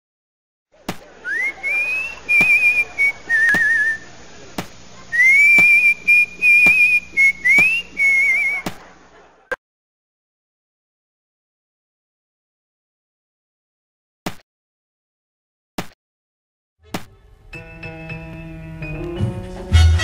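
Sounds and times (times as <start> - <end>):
person whistling a tune: 1.3 - 4.0, 5.2 - 8.6.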